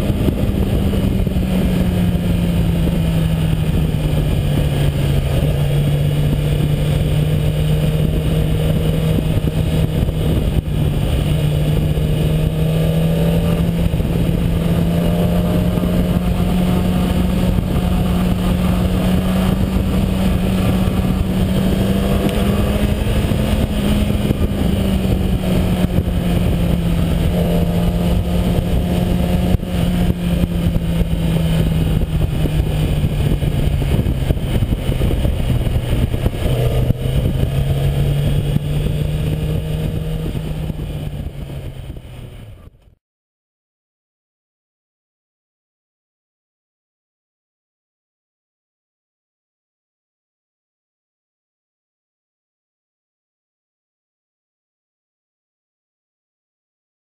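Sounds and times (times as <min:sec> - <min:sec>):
motorcycle engine running: 0:00.0 - 0:43.0
wind noise on microphone: 0:00.0 - 0:43.0.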